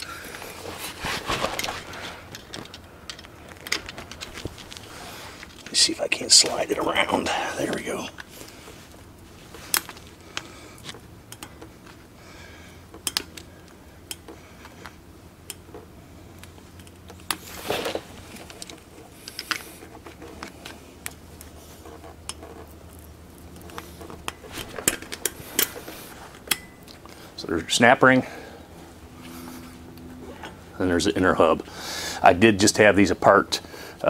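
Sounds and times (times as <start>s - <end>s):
screwdriver clicking and scraping metal: 13.0s - 13.5s, 16.4s - 27.0s.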